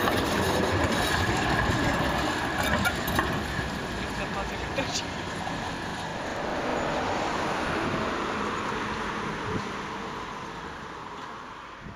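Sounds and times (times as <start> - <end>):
street traffic: 0.0 - 11.9
tram rolling on tracks: 0.0 - 11.9.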